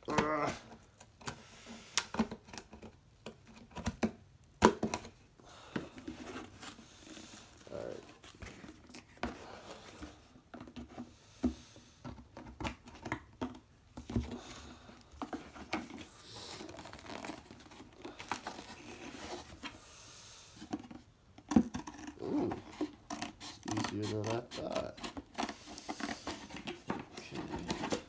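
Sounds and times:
cardboard crackling and rustling: 5.9s - 10.9s, 12.2s - 19.8s, 20.6s - 28.0s.

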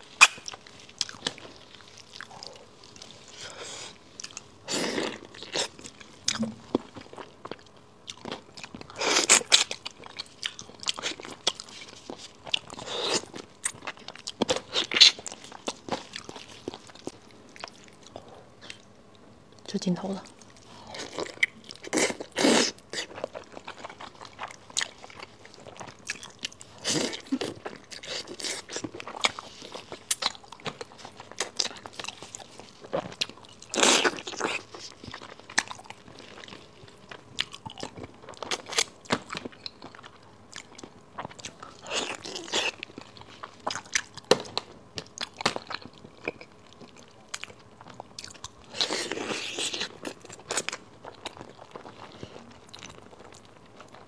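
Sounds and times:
biting and chewing meat: 20.6s - 54.0s.

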